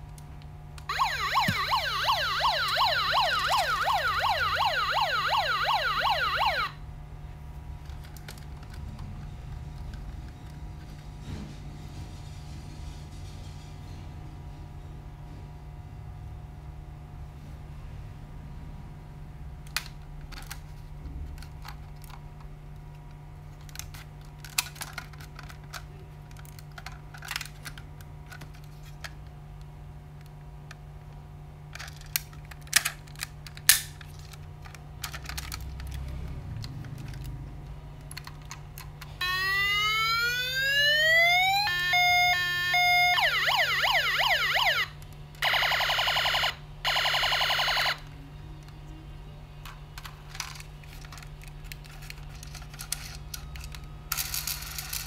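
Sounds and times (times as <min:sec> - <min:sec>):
toy electronic siren: 0:00.9 - 0:06.8, 0:39.2 - 0:48.2.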